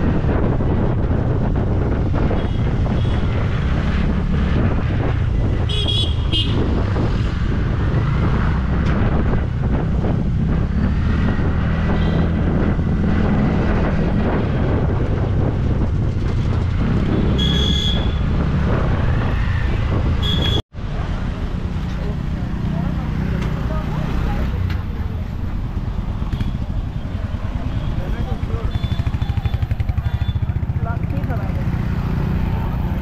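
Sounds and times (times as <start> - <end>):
wind buffeting microphone: 0.0 - 20.6
scooter engine rumble: 21.2 - 33.0.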